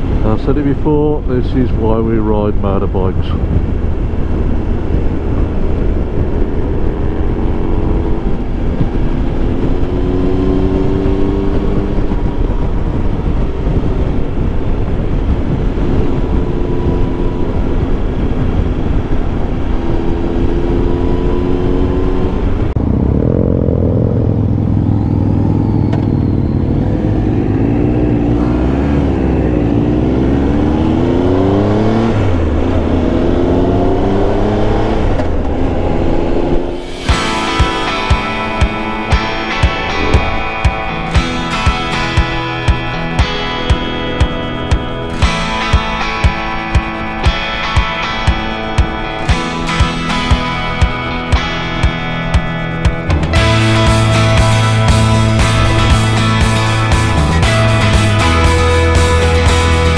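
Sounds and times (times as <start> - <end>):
motorcycle engine running: 0.0 - 59.9
wind rush over microphone: 0.0 - 59.9.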